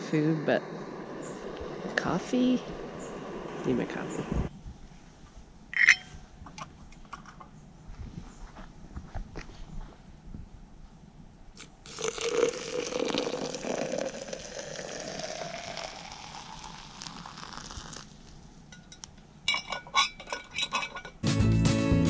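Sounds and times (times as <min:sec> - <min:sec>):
light metal clinks: 0:05.8 - 0:06.2, 0:18.7 - 0:21.2
water pouring into pot: 0:11.9 - 0:18.1.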